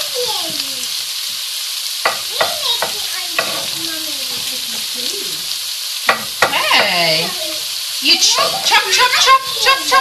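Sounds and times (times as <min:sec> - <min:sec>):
onions sizzling in a frying pan: 0:00.0 - 0:10.0
knife tapping on chopping board: 0:02.0 - 0:03.7, 0:06.1 - 0:07.0.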